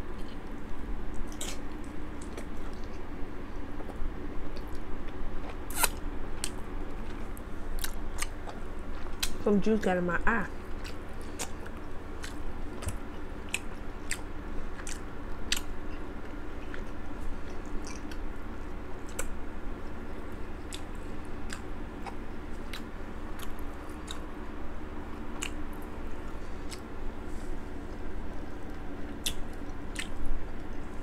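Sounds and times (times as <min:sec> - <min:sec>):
steady low hum: 0:00.0 - 0:31.0
chewing with wet mouth clicks: 0:01.1 - 0:03.0, 0:03.8 - 0:09.4, 0:10.7 - 0:18.3, 0:19.0 - 0:19.4, 0:20.6 - 0:24.3, 0:25.3 - 0:25.9, 0:28.3 - 0:30.8.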